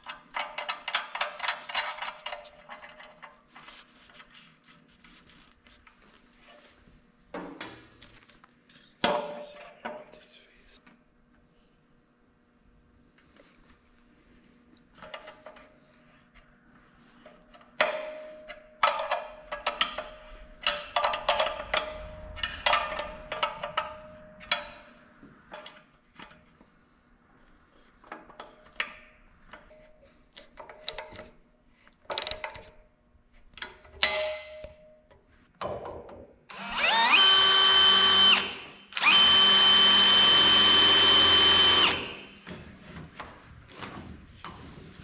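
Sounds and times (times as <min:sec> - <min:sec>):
cordless drill drilling: 0:36.5 - 0:42.3.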